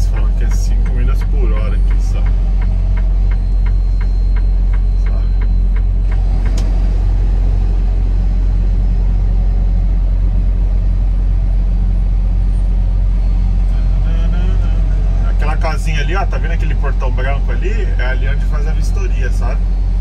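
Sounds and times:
regular ticking: 0.0s - 6.9s
truck engine rumble: 0.0s - 20.0s.

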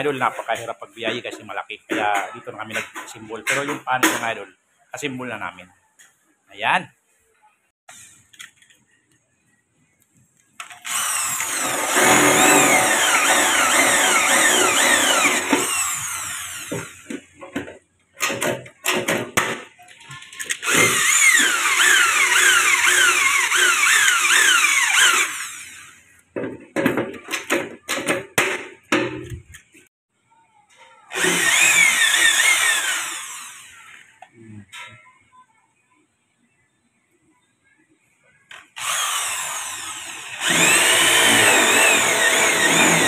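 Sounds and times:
electric drill boring into metal: 10.6s - 17.2s, 20.5s - 26.0s, 31.1s - 34.1s, 38.5s - 43.0s.

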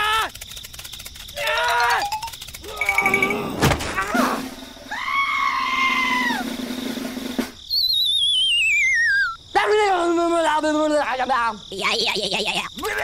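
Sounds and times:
squeaky cartoon calls: 7.7s - 9.4s
wavering descending whistle: 7.7s - 9.4s.

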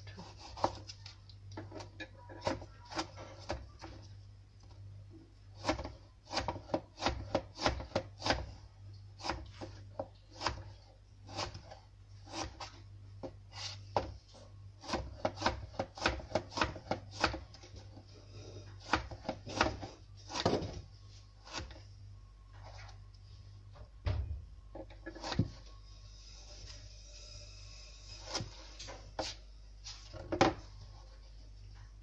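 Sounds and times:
knife slicing tomato: 0.1s - 1.1s, 5.6s - 8.6s, 9.2s - 12.8s, 14.8s - 17.9s, 18.5s - 20.8s, 21.4s - 21.8s, 25.1s - 25.7s.

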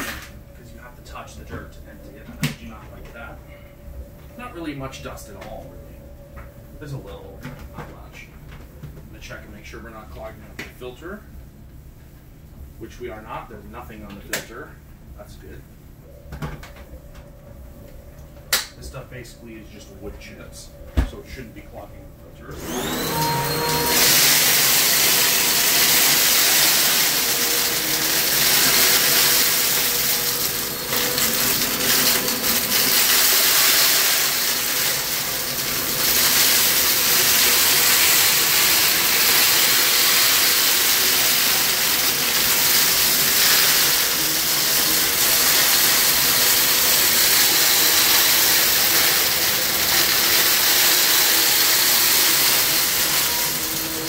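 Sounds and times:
vacuum cleaner running: 22.3s - 54.0s
wood chips rattling in vacuum: 22.6s - 54.0s.

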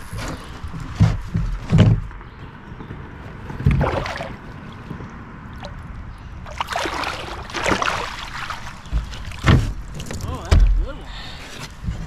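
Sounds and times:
water splashing beside kayak: 3.7s - 4.8s, 5.5s - 10.9s.

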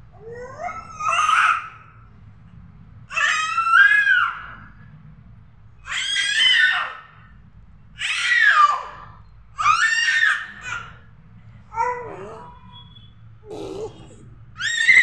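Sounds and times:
baby squealing: 13.4s - 15.0s.

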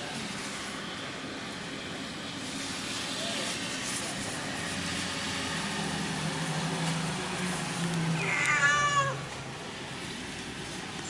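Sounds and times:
cat meowing: 8.2s - 9.2s.

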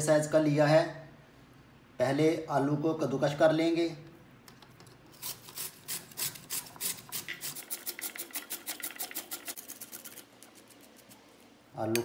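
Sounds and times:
potato grating on metal grater: 5.1s - 11.5s.

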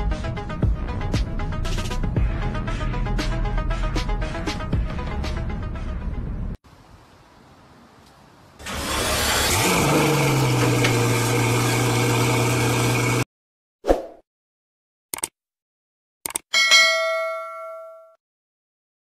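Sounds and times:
car engine starting and idling: 8.1s - 13.2s.

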